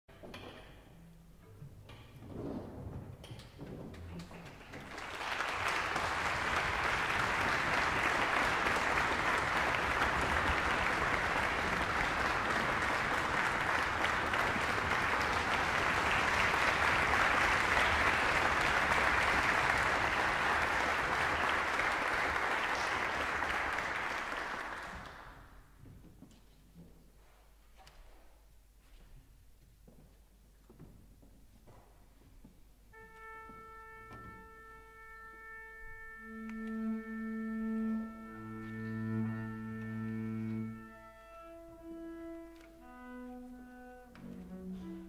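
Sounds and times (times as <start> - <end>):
audience applauding: 4.2 - 25.6.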